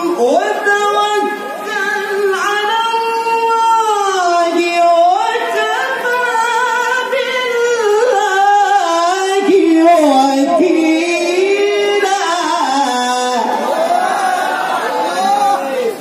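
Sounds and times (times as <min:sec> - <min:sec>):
man reciting in melodic chant: 0:08.3 - 0:13.6.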